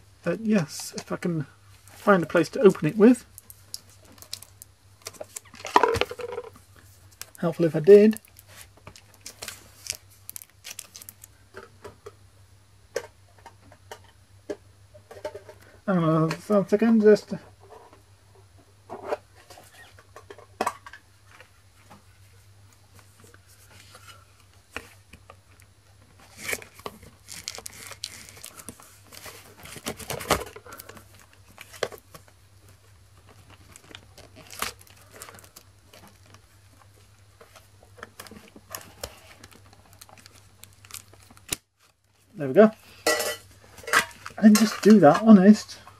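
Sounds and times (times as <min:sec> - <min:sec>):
plastic wrap crinkling and tearing: 0:02.0 - 0:05.7, 0:07.1 - 0:11.4, 0:26.2 - 0:32.0, 0:33.2 - 0:36.5, 0:37.6 - 0:42.2.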